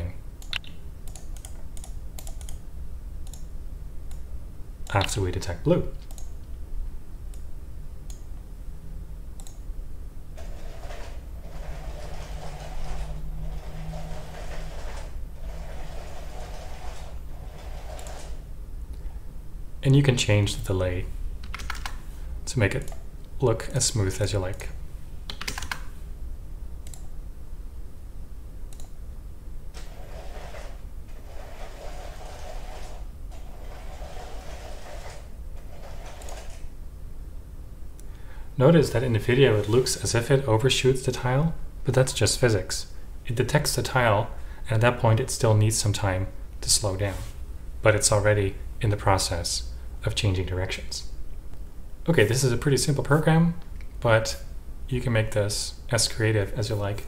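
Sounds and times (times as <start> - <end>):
mouse clicks: 0.4 - 2.6, 26.8 - 27.1
wheels rolling on plastic track: 10.4 - 18.3, 29.8 - 36.6.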